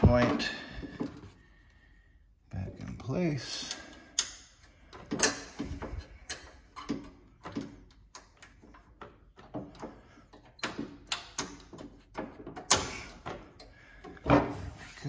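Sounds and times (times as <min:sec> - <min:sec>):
small metal clicks and taps: 0:03.6 - 0:12.9.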